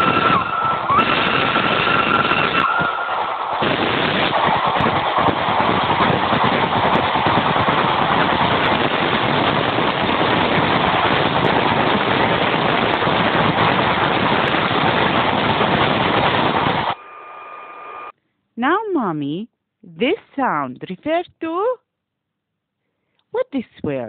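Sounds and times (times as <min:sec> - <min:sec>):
train rumbling: 0:00.0 - 0:17.0.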